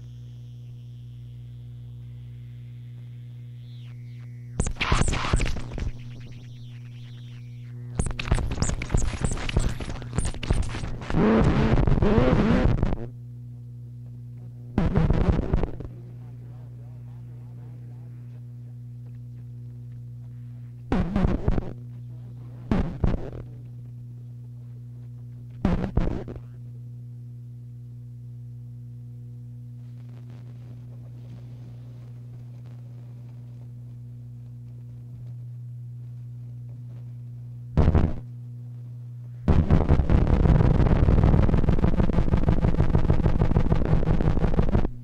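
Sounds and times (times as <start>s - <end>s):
dense pulsing noise: 0.0s - 45.0s
low electronic hum: 0.0s - 45.0s
harsh noise blasts: 3.1s - 12.4s.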